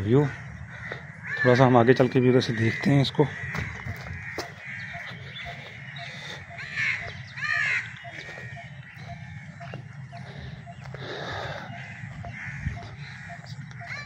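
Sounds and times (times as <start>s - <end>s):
crow cawing: 0.0s - 14.0s
low background hum: 4.0s - 14.0s.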